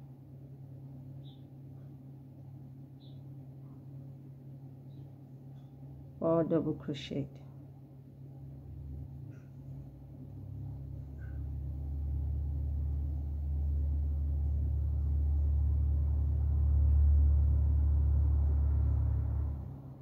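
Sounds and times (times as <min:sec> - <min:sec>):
low rumble: 0:08.8 - 0:20.0.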